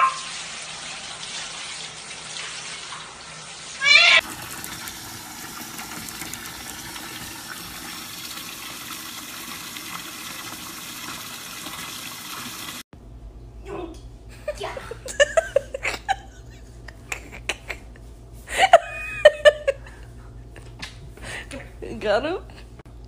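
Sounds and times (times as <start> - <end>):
shower water spraying into bucket: 0.0 - 12.8
cat meowing: 3.8 - 4.2.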